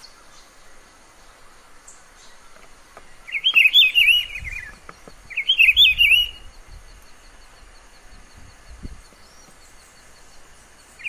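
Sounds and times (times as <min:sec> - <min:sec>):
bird singing whistled notes: 0:03.1 - 0:11.0.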